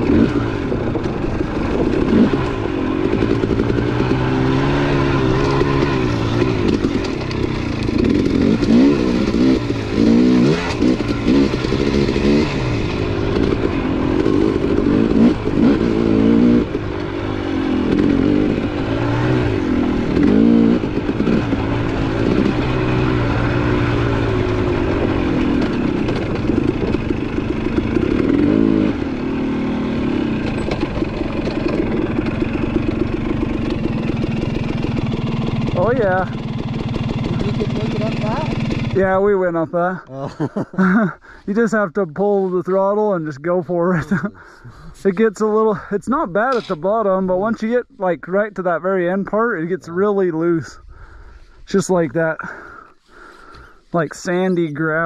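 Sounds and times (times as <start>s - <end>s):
dirt bike engine revving: 0.0s - 41.4s, 43.0s - 55.0s.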